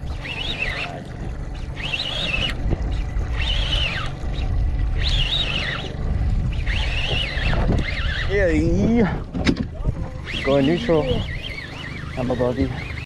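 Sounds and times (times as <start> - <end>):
fishing reel whine: 0.0 - 9.2, 9.8 - 13.0
boat motor running: 0.0 - 13.0
wind rush: 2.6 - 10.4.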